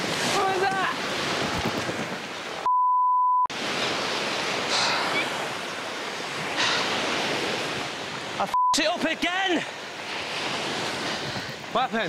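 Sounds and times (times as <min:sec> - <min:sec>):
surf washing on shore: 0:00.0 - 0:02.7, 0:03.5 - 0:12.0
censor bleep: 0:02.7 - 0:03.5, 0:08.5 - 0:08.8.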